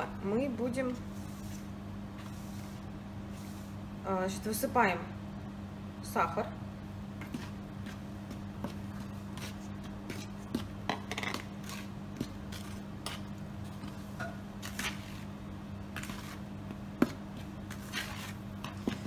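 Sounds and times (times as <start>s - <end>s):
steady low hum: 0.0s - 19.0s
spoon scraping plastic bowl: 16.0s - 16.4s, 17.7s - 19.0s.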